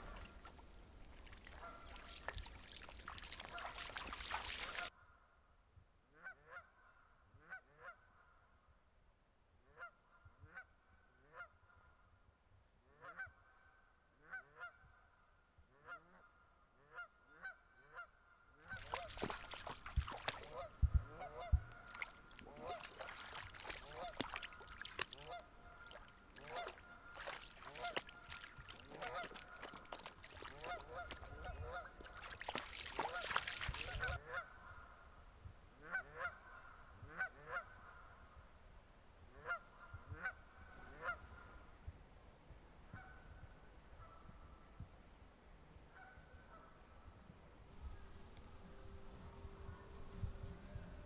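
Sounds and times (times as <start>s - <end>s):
splashing shallow water: 0.0s - 4.9s, 18.7s - 34.2s
geese honking: 1.5s - 4.9s, 18.7s - 34.9s.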